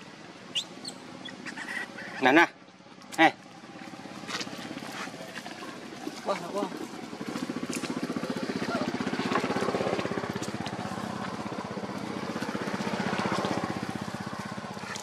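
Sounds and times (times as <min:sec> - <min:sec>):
small engine puttering: 0:03.6 - 0:15.0.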